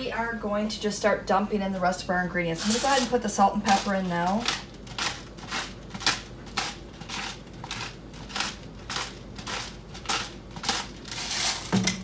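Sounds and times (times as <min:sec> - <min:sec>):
salt grinder grinding: 0:02.6 - 0:11.8.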